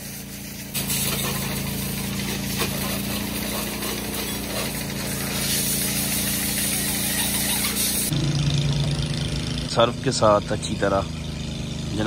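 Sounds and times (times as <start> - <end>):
high-pressure water jet hissing: 0.0 - 8.1
pump motor hum: 0.0 - 8.7.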